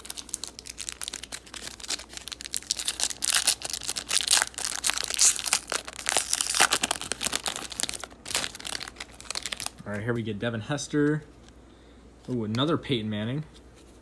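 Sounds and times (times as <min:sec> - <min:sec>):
foil wrapper crinkling and tearing: 0:00.0 - 0:09.9.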